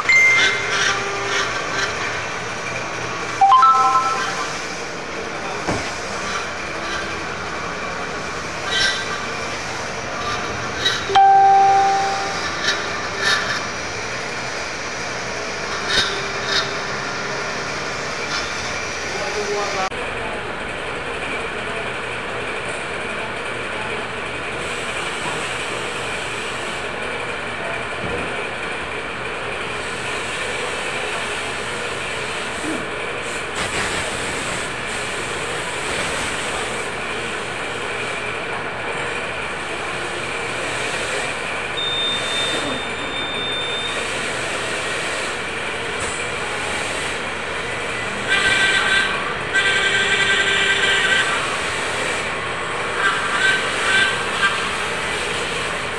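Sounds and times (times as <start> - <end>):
running machinery: 0.0 - 3.5, 4.3 - 55.9
faint machine whines: 10.2 - 15.2, 41.7 - 45.3.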